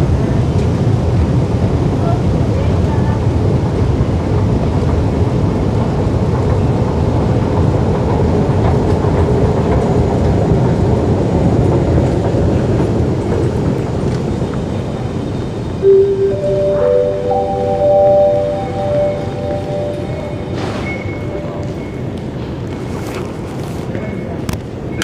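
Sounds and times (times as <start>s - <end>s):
electronic chime notes: 15.8s - 22.1s.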